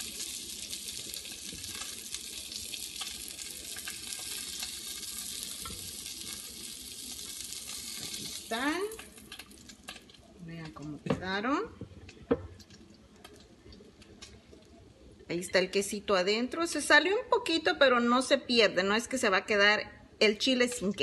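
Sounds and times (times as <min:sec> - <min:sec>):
food sizzling in a pan: 0:00.0 - 0:11.6.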